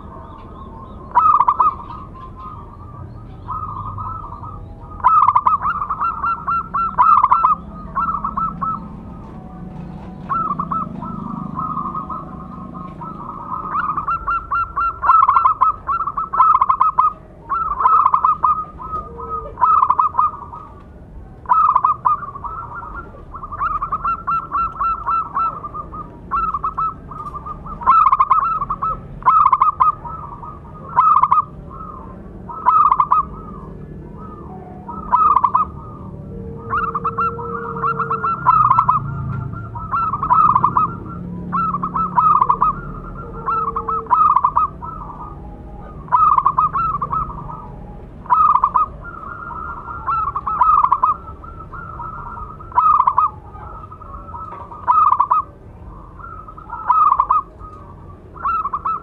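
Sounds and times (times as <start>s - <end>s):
dove cooing: 0.0s - 59.0s.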